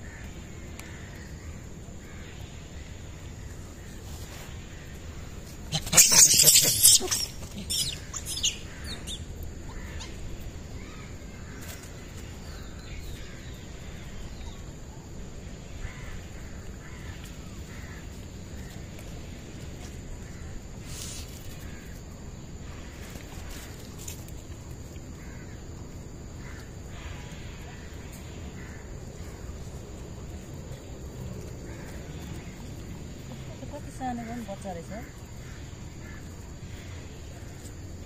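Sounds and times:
faint animal calls: 5.5 - 11.8.

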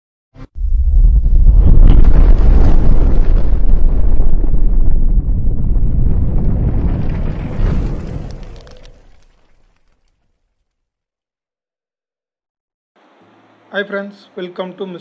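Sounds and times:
deep rumbling blast: 0.5 - 9.1.

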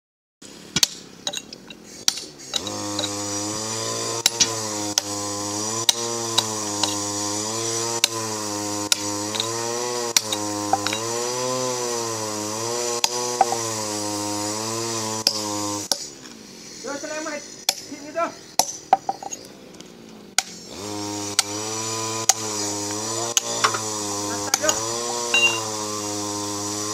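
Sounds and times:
hammer striking steel wedges: 0.7 - 3.2, 4.2 - 5.1, 5.9 - 7.0, 10.2 - 11.1, 13.0 - 13.7, 18.6 - 19.4, 23.4 - 23.9, 24.5 - 25.7.

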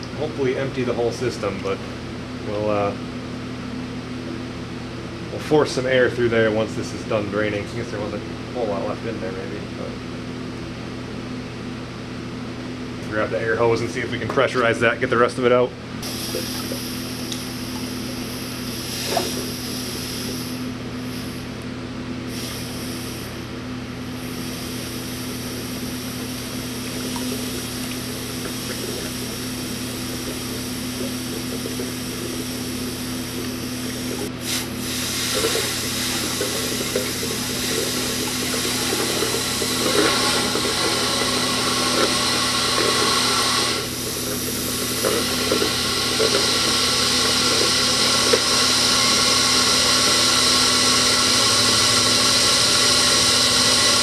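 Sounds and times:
liquid gurgling into bucket: 16.0 - 20.6, 24.6 - 54.0
compressed air blowing through hose: 16.0 - 21.5, 22.3 - 23.4, 24.2 - 54.0.

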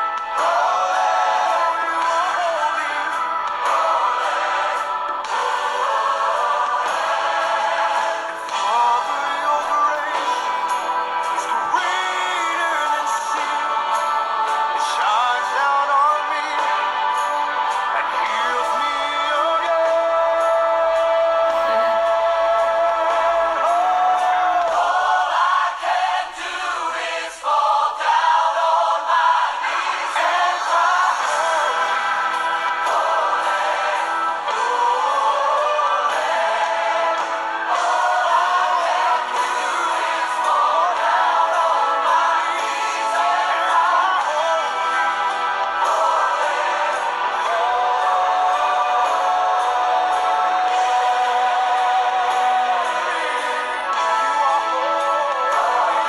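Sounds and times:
choir singing worship song: 0.0 - 56.0.

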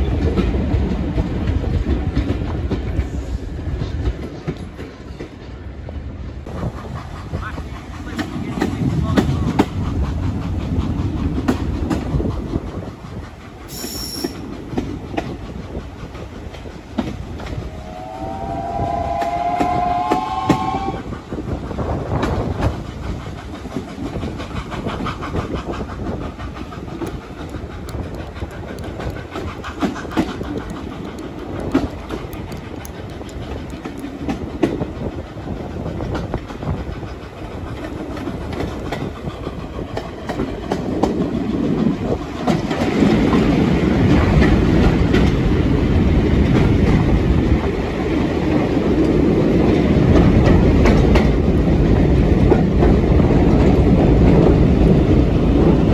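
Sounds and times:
train carriages rolling rumble: 0.0 - 55.9
steam locomotive whistle: 13.7 - 14.4, 17.6 - 21.1.

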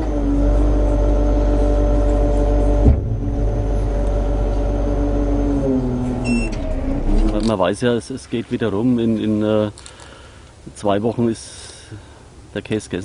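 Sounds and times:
harvester engine running: 0.0 - 7.7
sharp clunk: 2.8 - 4.7.

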